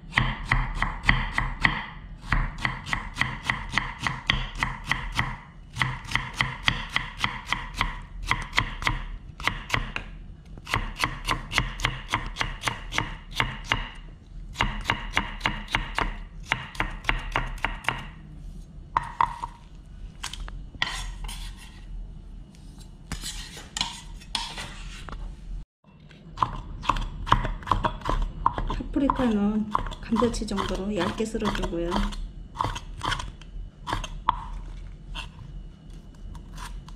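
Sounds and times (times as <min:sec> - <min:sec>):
knife chopping on wooden board: 0:00.2 - 0:14.0, 0:14.6 - 0:18.1
scraping on board: 0:20.8 - 0:21.9.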